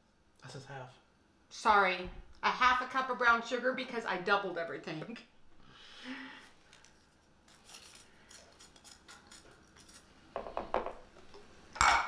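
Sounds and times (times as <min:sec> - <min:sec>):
spoon scraping sugar: 0:07.5 - 0:10.2.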